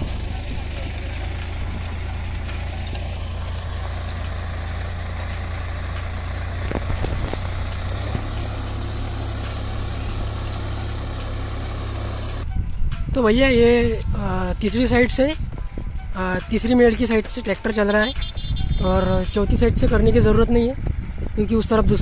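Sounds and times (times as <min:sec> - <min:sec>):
tractor engine under load: 0:00.0 - 0:12.9.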